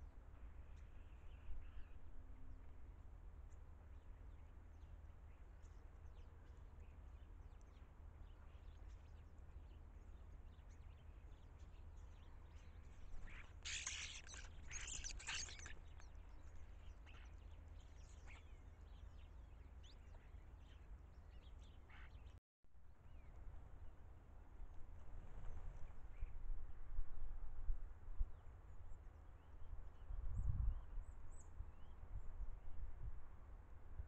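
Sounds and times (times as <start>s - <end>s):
starlings chirping: 7.6s - 22.4s
low wind rumble: 22.9s - 34.0s.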